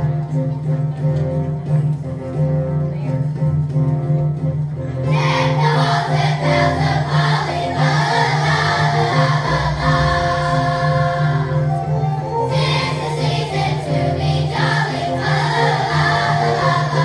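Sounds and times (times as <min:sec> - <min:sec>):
instrumental accompaniment: 0:00.0 - 0:17.0
low bass notes: 0:03.9 - 0:17.0
children's choir singing: 0:05.0 - 0:17.0.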